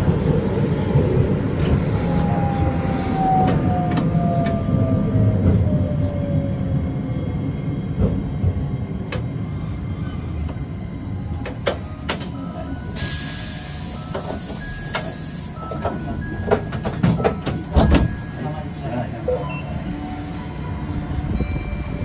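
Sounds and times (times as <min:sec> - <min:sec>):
tram wheels rumbling: 0:00.0 - 0:22.0.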